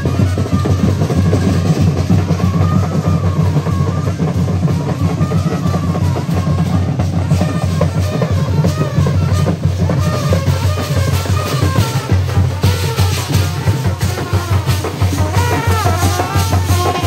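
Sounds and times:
loud steady drumming: 0:00.0 - 0:17.0
brass horns playing melody: 0:05.2 - 0:17.0.

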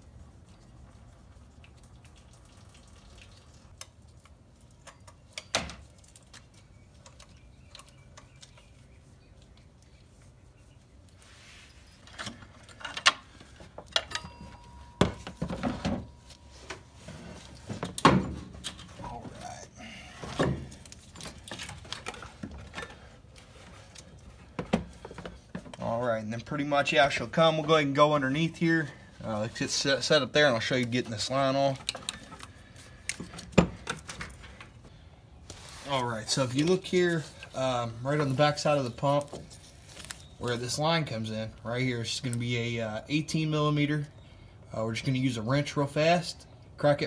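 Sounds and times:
tools and metal parts clanking: 0:11.9 - 0:19.5, 0:20.2 - 0:23.1.

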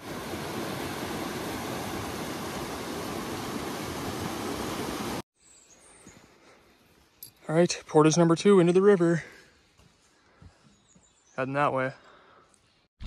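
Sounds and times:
water rushing over rocks: 0:00.0 - 0:05.2.

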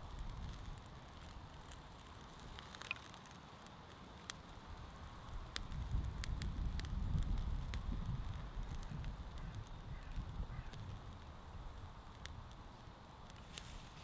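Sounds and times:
kindling fire crackling: 0:00.0 - 0:14.0
sharp pops of fire: 0:00.0 - 0:14.0
wind buffeting microphone: 0:05.3 - 0:12.6.

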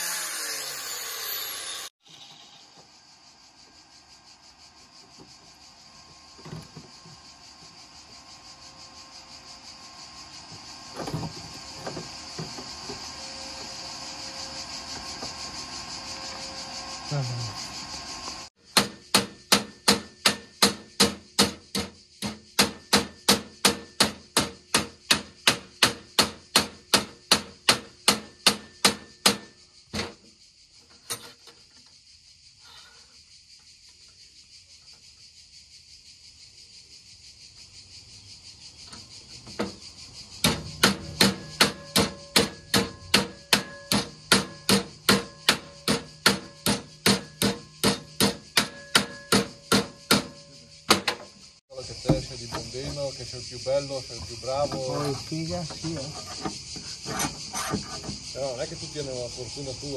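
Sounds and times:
hammer striking metal: 0:18.8 - 0:29.5, 0:40.4 - 0:51.2.

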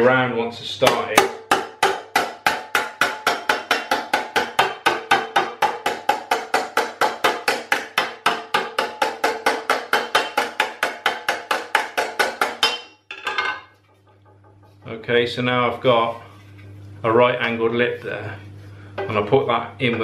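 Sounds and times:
hammer tapping sheet metal: 0:00.8 - 0:13.0.

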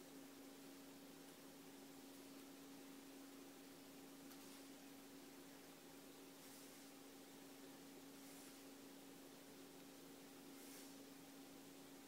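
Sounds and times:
faint steady hiss: 0:00.0 - 0:12.0
low steady hum: 0:00.0 - 0:12.0.

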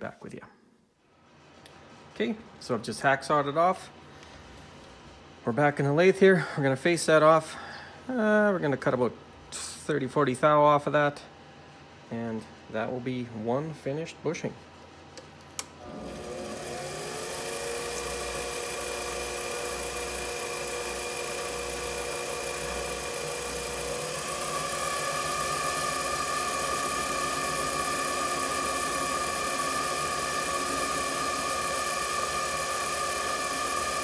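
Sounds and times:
lathe motor and gear whine: 0:15.8 - 0:34.0.

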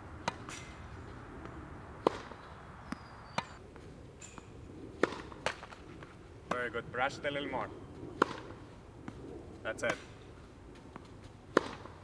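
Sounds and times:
tennis ball bouncing on court: 0:00.2 - 0:00.7, 0:01.4 - 0:03.6, 0:04.2 - 0:05.8, 0:06.4 - 0:06.8, 0:08.2 - 0:10.2, 0:10.8 - 0:12.0
tennis ball hitting racquet: 0:00.2 - 0:03.6, 0:04.2 - 0:07.6, 0:08.2 - 0:10.2, 0:10.8 - 0:12.0.

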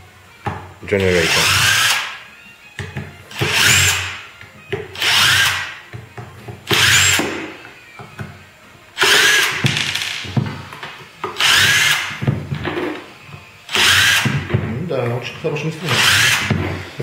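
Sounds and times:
cordless drill whirring: 0:01.2 - 0:02.2, 0:03.3 - 0:04.2, 0:05.0 - 0:05.7, 0:06.7 - 0:07.4, 0:09.0 - 0:09.6, 0:11.4 - 0:12.2, 0:13.7 - 0:14.5, 0:15.9 - 0:17.0.

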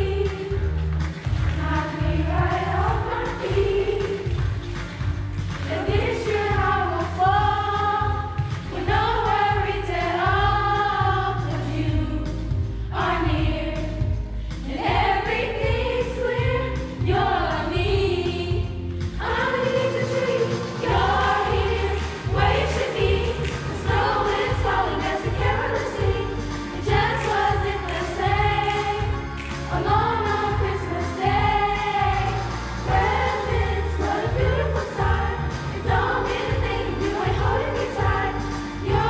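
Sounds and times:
youth choir singing: 0:00.0 - 0:00.7, 0:01.4 - 0:04.6, 0:05.6 - 0:39.0
deep bass line: 0:20.9 - 0:39.0.

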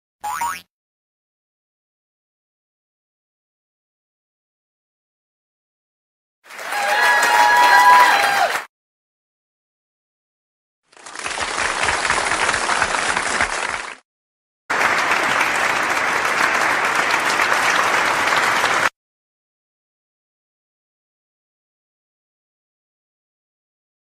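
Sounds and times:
applause: 0:06.4 - 0:08.7, 0:10.9 - 0:14.0, 0:14.7 - 0:19.0.

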